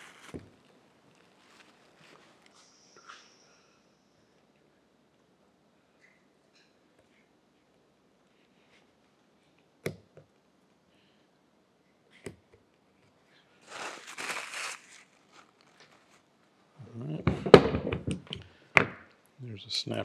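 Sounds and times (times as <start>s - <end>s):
scraping rustle: 0.0s - 2.7s, 13.6s - 16.3s.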